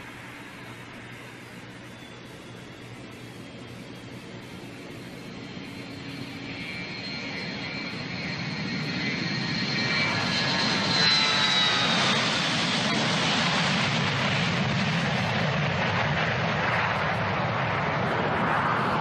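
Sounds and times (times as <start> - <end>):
high whine gliding down: 0.0 - 14.2
jet aircraft passing: 0.0 - 19.0.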